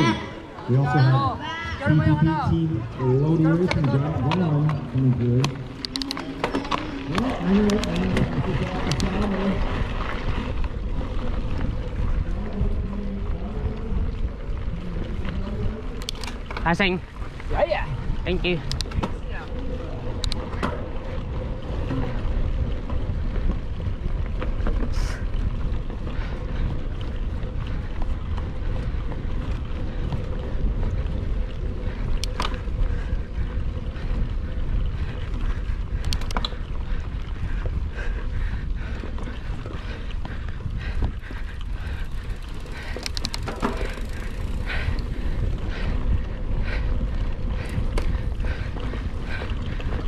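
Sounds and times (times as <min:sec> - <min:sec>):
bike tyres on trail: 0:00.0 - 0:50.0
wind on microphone: 0:00.0 - 0:50.0
rapid clicks: 0:36.0 - 0:36.7, 0:41.3 - 0:45.4
small rattles: 0:40.8 - 0:45.9.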